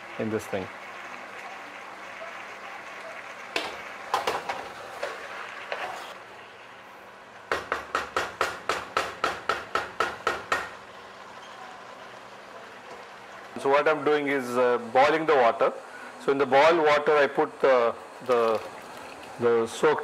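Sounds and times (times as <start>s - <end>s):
kitchen knocks: 7.5s - 10.8s.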